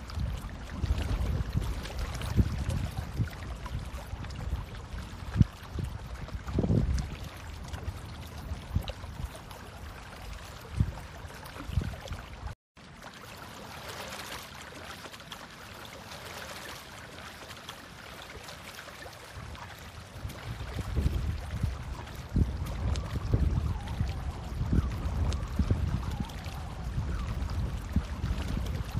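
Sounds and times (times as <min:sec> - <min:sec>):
wind on microphone: 0:00.0 - 0:12.6, 0:19.0 - 0:28.9.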